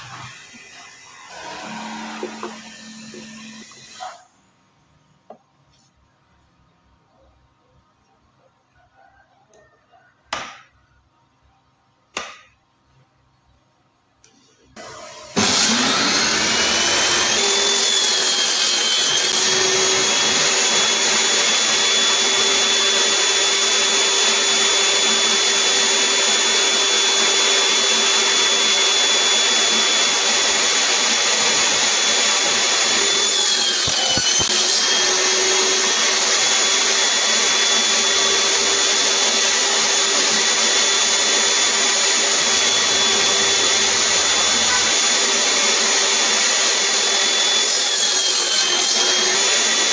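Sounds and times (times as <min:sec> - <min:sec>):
saw blade cutting wood: 0:00.0 - 0:04.3, 0:14.8 - 0:49.9
table saw whining: 0:00.0 - 0:04.4, 0:14.4 - 0:49.9.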